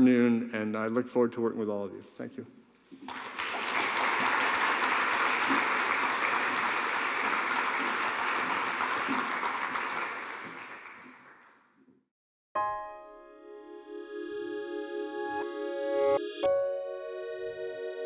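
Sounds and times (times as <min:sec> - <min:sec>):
audience applauding: 0:03.0 - 0:11.6.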